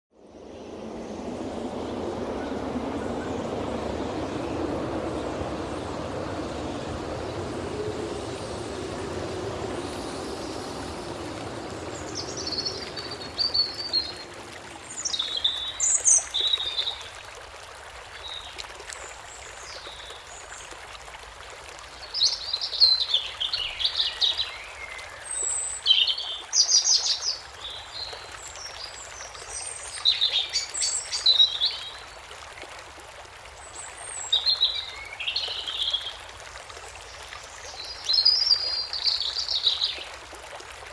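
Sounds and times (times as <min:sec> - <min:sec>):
low hum: 0:00.2 - 0:15.1
trickle of running water: 0:00.4 - 0:40.9
small birds chirping: 0:05.3 - 0:16.5.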